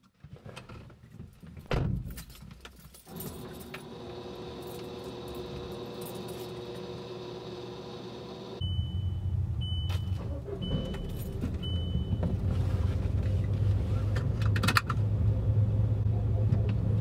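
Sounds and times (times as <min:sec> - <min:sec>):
car keys jangling: 0:02.0 - 0:03.8, 0:11.0 - 0:11.5
ignition hum with whining: 0:03.1 - 0:12.3.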